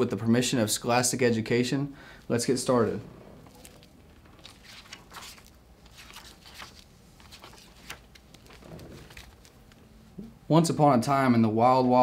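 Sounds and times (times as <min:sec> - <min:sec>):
book pages turning: 0:03.3 - 0:10.1.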